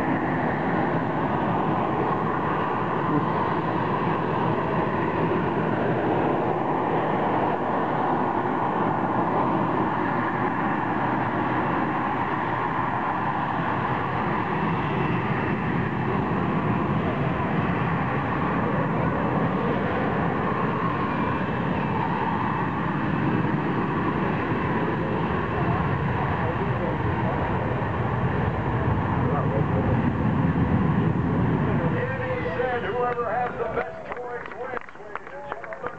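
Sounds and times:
jet engine roaring in hover: 0.0s - 35.9s.

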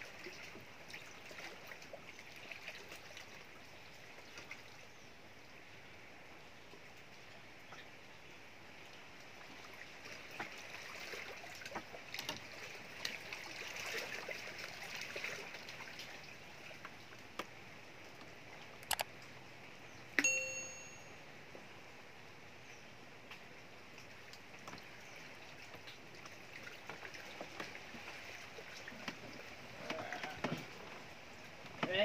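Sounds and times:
bell-like notification ding: 20.2s - 21.3s.

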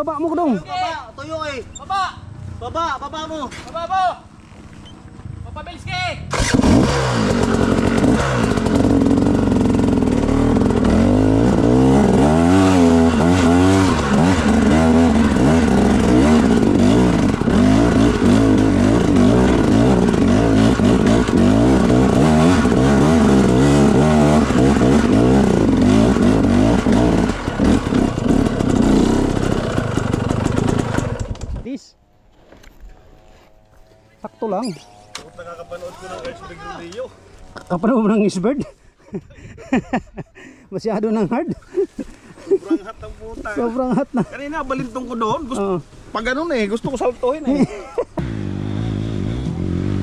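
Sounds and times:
dirt bike engine revving: 6.3s - 31.7s, 32.9s - 38.6s, 46.6s - 50.0s.

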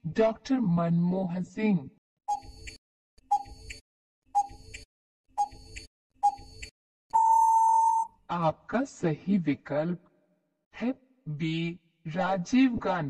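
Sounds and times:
clock-like ticks: 2.3s - 3.8s, 4.4s - 6.7s
long steady beep: 7.1s - 8.1s.

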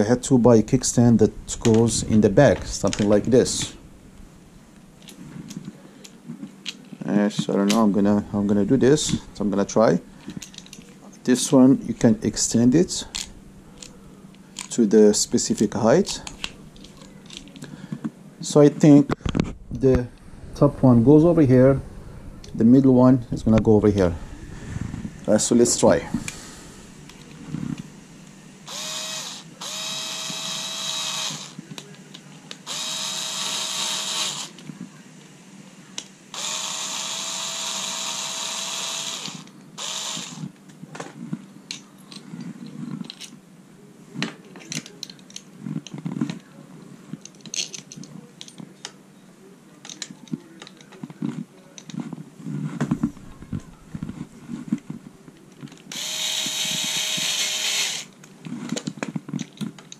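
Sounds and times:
cordless screwdriver running: 28.7s - 31.6s, 32.6s - 34.6s, 36.3s - 40.5s, 55.9s - 58.1s.

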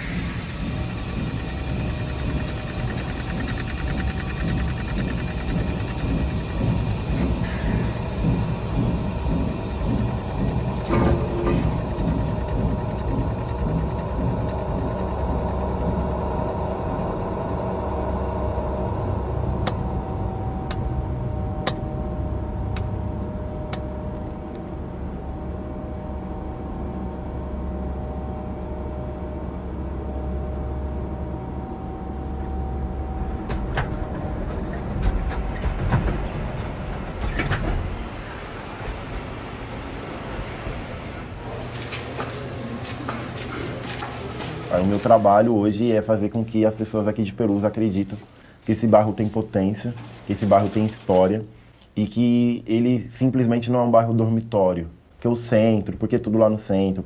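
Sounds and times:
sharp clicks: 0.0s - 7.9s
high steady tones: 0.0s - 22.2s.

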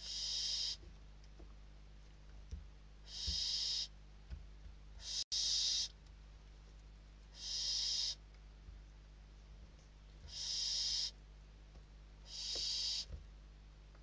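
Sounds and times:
owl chicks hissing: 0.0s - 0.8s, 3.0s - 3.9s, 5.0s - 5.9s, 7.3s - 8.2s, 10.3s - 11.2s, 12.2s - 13.1s.

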